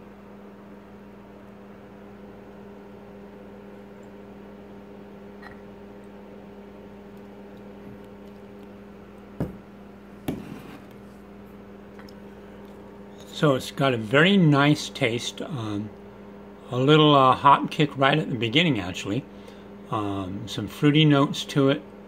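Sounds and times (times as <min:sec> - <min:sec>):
low electrical hum: 0:00.0 - 0:22.0
glass knocking on countertop: 0:09.4 - 0:09.6.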